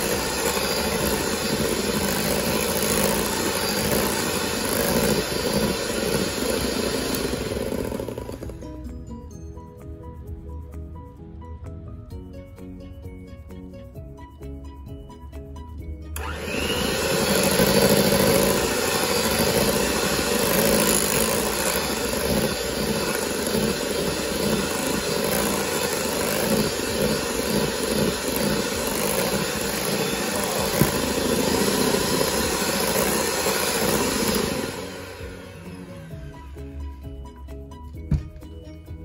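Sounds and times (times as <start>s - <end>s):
electric hand mixer whipping: 0.0s - 8.9s, 16.2s - 37.1s.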